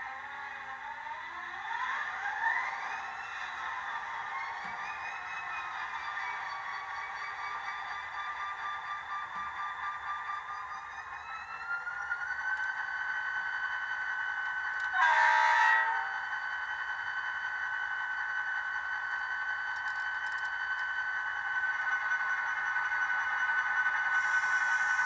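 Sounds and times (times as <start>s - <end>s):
model train engine drone: 0.0s - 25.0s
train horn blast: 15.0s - 16.0s.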